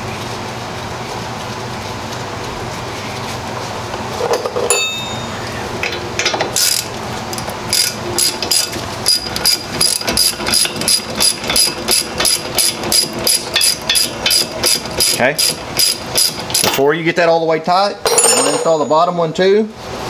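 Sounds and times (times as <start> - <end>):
ratchet wrench clicking: 6.6 - 16.7.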